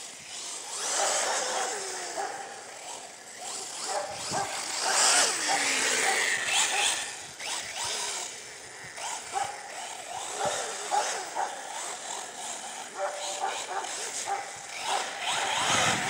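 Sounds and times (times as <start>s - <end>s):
rc car motor whining: 0.0s - 16.0s.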